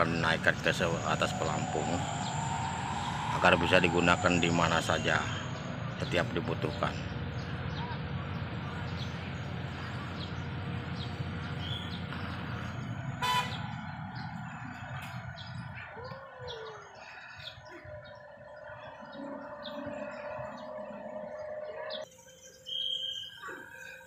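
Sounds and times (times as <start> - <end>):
low engine rumble: 0.0 - 22.1
birds chirping: 0.0 - 24.0.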